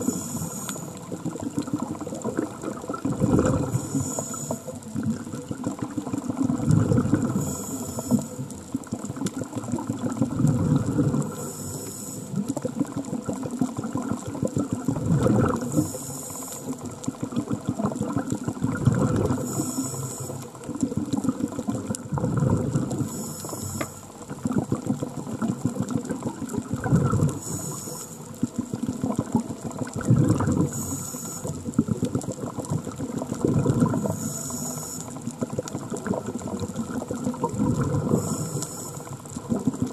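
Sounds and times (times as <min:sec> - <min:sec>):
regulator hissing inhale: 0:00.0 - 0:01.1, 0:03.6 - 0:04.8, 0:07.2 - 0:08.4, 0:11.3 - 0:12.4, 0:15.7 - 0:16.8, 0:19.4 - 0:20.6, 0:23.0 - 0:24.0, 0:27.4 - 0:28.3, 0:30.7 - 0:31.6, 0:34.0 - 0:35.2, 0:38.1 - 0:39.1
exhaled bubbles gurgling: 0:00.0 - 0:39.9.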